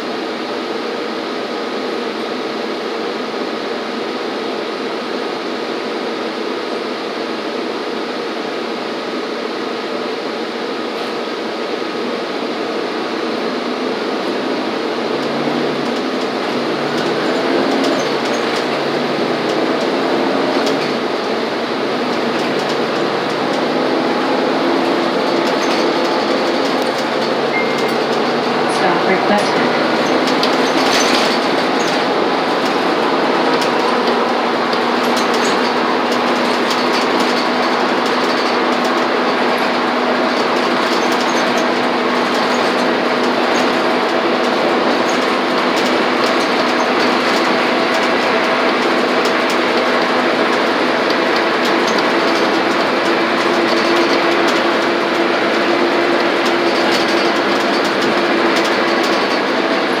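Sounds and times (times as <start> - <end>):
bus engine drone: 0.0 - 60.0
road noise: 12.0 - 60.0
interior clicks and rattles: 15.1 - 60.0
higher hum: 15.4 - 35.1.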